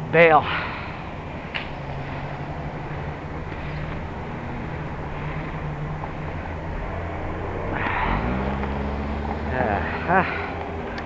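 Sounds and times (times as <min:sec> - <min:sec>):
road noise: 0:00.0 - 0:11.0
vehicle engines humming: 0:00.0 - 0:11.0.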